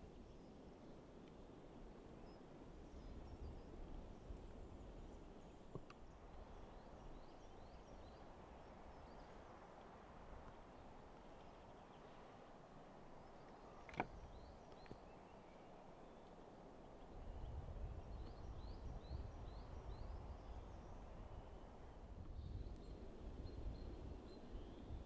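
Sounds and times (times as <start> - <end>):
small click: 13.8 - 15.0.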